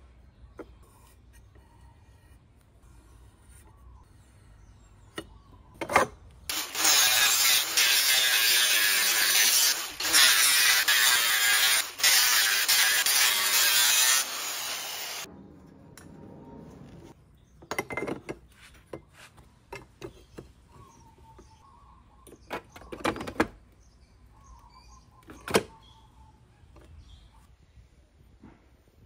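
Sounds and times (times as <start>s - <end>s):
angle grinder cutting metal: 6.5s - 15.3s.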